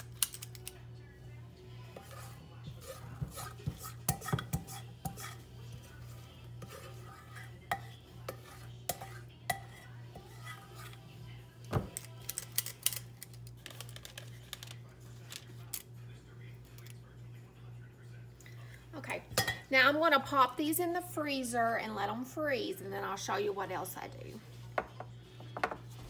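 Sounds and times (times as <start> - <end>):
cookie scoop clicking and scraping: 0.0 - 0.8, 11.9 - 15.9.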